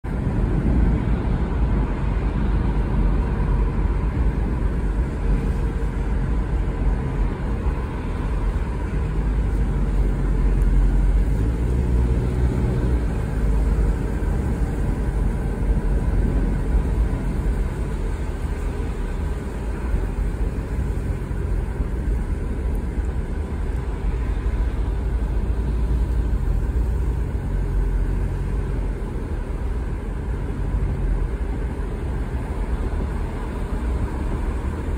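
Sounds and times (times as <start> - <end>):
car engine and road rumble: 0.0 - 34.9
tyre hiss on wet road: 2.1 - 34.9.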